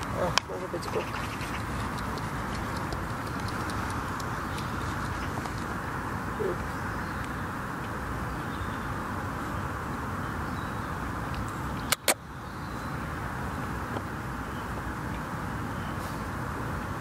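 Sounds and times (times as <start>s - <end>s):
low outdoor background noise: 0.0s - 17.0s
sharp clicks: 1.2s - 5.7s, 11.3s - 12.2s.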